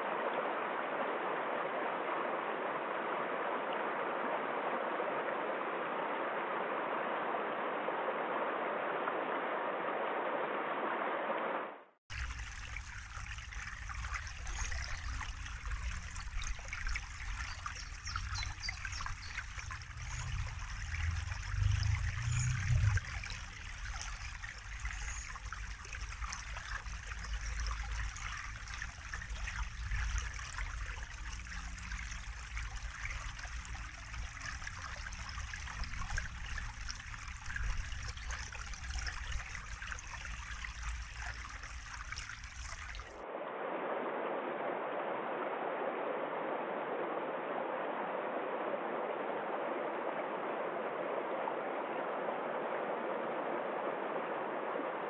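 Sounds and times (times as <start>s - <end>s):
brook trickling and splashing: 12.1s - 43.2s
low rumble: 14.0s - 39.0s.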